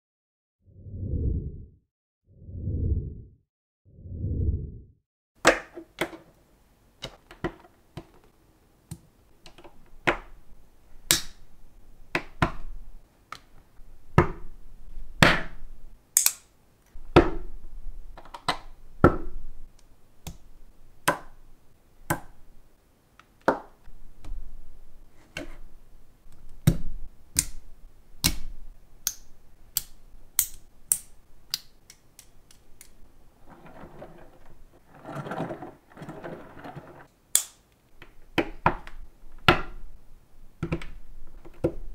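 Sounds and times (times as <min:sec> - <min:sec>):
plastic bricks snapping together: 0:11.0 - 0:11.4, 0:16.2 - 0:16.5, 0:21.0 - 0:21.4, 0:26.3 - 0:33.0, 0:37.3 - 0:39.9
toy wheels rattling on plastic rail: 0:33.2 - 0:37.1.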